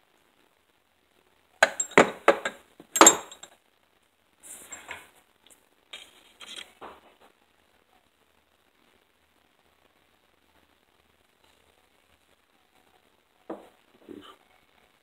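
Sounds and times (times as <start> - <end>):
metal sockets clinking: 1.6 - 3.5.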